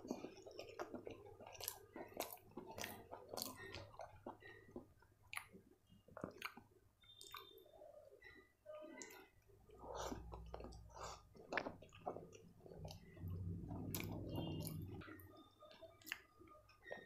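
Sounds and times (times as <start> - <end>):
chewing with mouth smacks: 0.0 - 17.0
low hum: 12.7 - 15.4.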